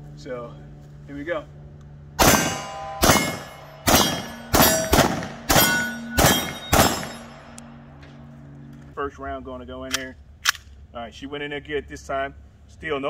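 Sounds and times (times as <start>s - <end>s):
pistol shots with ringing tail: 2.2s - 8.3s.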